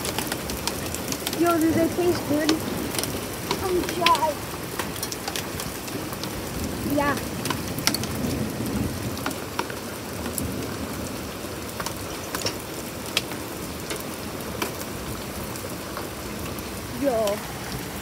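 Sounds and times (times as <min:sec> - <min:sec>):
hailstones clicking: 0:00.0 - 0:18.0
rain hissing on wooden deck: 0:00.0 - 0:18.0.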